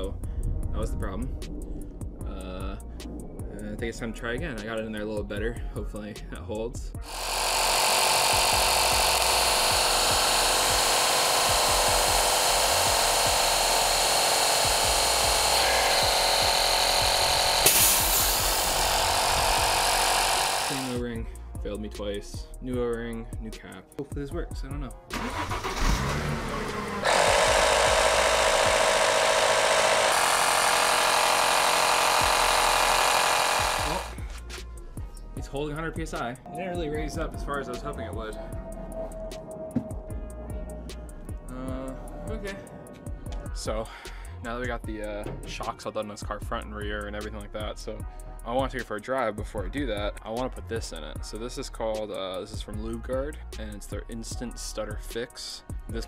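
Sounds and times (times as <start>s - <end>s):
air compressor running: 7.0s - 21.0s, 25.1s - 34.4s.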